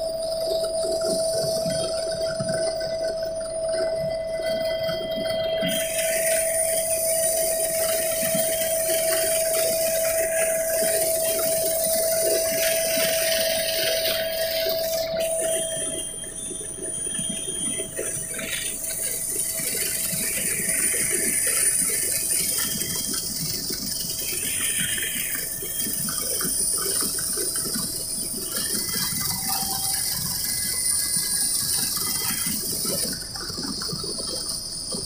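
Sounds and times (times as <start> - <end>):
helicopter rotor drone: 0.0 - 35.0
high turbine whine: 0.0 - 35.0.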